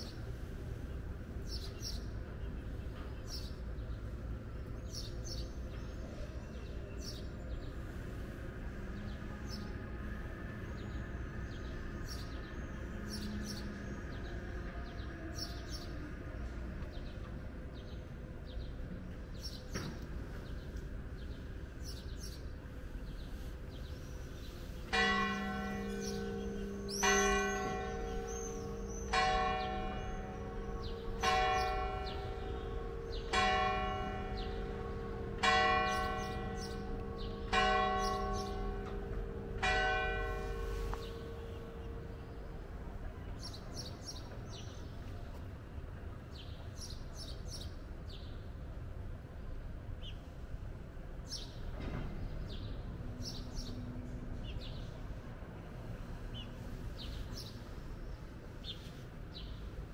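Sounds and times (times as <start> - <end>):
low steady town hum: 0.0 - 59.9
church bell tolling: 24.9 - 43.9.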